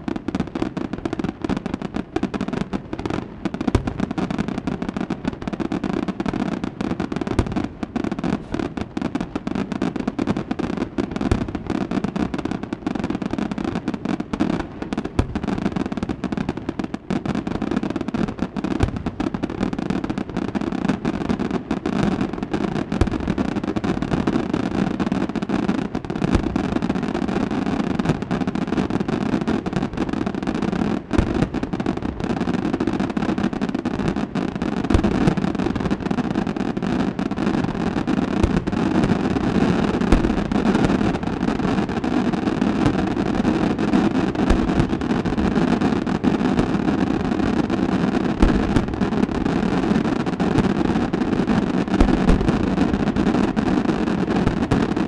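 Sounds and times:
fireworks bangs and crackles: 0.0 - 55.0.

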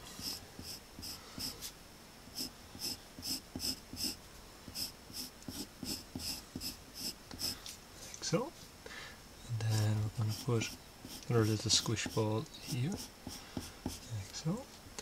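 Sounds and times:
pencil scratching on paper: 0.2 - 1.6, 2.3 - 7.6, 9.8 - 14.1.

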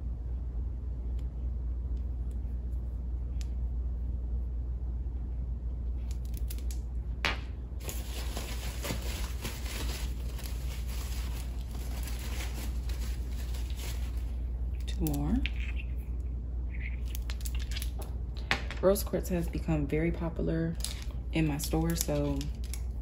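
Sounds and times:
plastic wrapping crinkling: 7.8 - 15.9.

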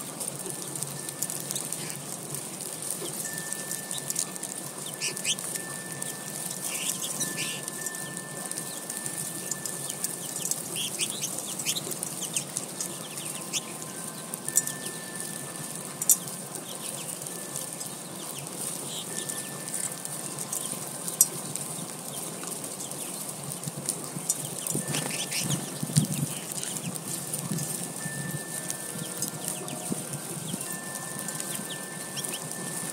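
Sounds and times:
birds chirping: 0.4 - 32.9
wing flutters: 23.8 - 32.6.

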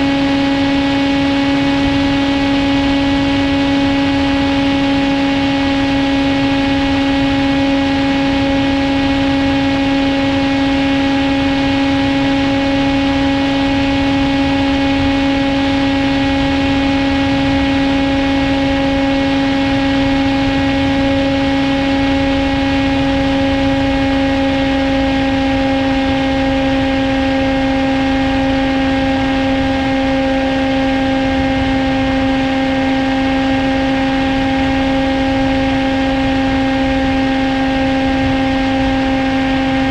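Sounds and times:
electric motor and propeller drone: 0.0 - 39.9.

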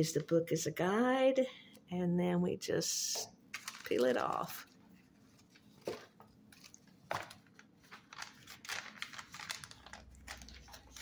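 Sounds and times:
paper sheet crinkling: 3.5 - 11.0.

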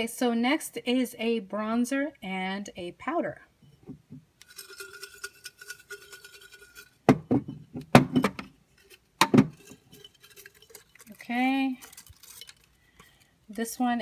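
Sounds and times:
glass clink: 4.5 - 7.6
glass jar knocking on desk: 7.1 - 8.5, 9.2 - 9.6.

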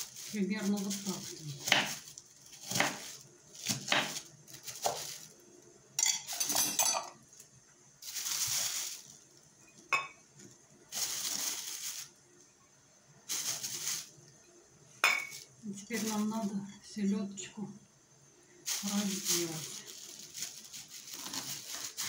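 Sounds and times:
plastic rustling and crinkling: 0.0 - 5.6, 7.2 - 12.3, 13.2 - 14.3, 15.2 - 16.6, 18.6 - 22.0
knife cutting onion on board: 2.6 - 4.2.

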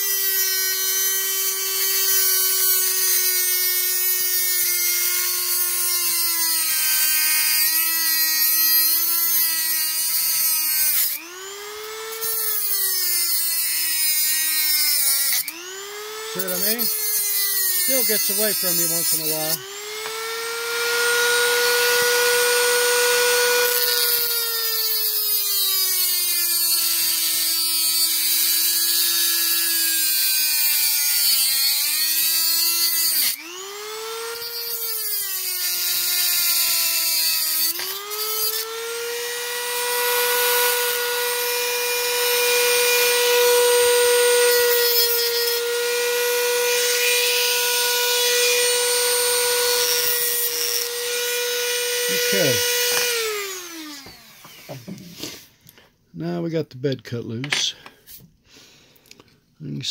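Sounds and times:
rotary tool motor whining: 0.0 - 55.7
cut-off wheel grinding hiss: 52.0 - 55.6.

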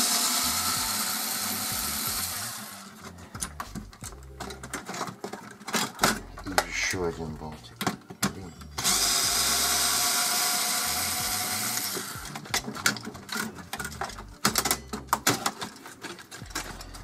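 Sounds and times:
cordless screwdriver running: 0.0 - 2.9, 8.8 - 12.4
sharp plastic clicks and knocks: 12.2 - 17.0.

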